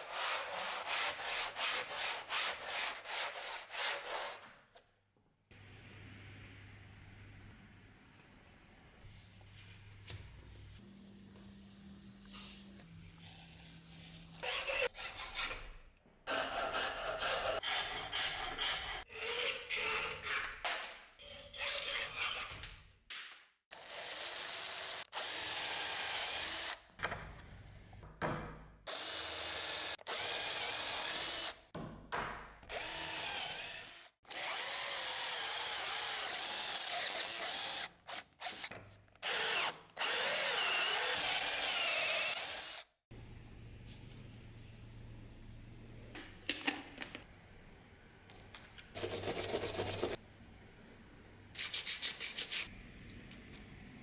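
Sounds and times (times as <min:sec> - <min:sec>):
power drill boring into antler: 0:32.7 - 0:42.8.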